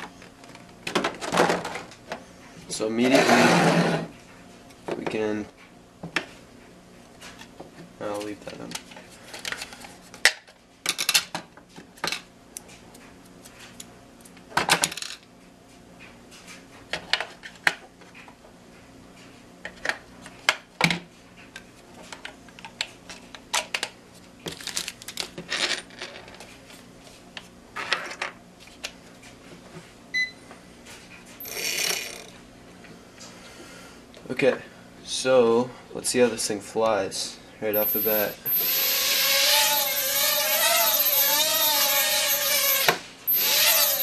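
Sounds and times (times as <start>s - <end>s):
short beep: 37.8s - 39.0s.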